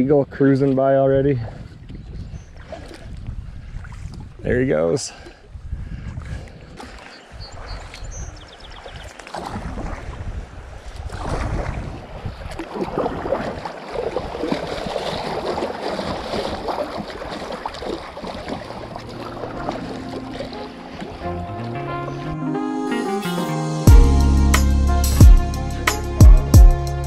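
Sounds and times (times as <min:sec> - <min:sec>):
wind rumble on microphone: 0:00.0 - 0:20.0
river water rippling and splashing: 0:01.6 - 0:04.4, 0:05.1 - 0:22.4
music: 0:19.0 - 0:27.0.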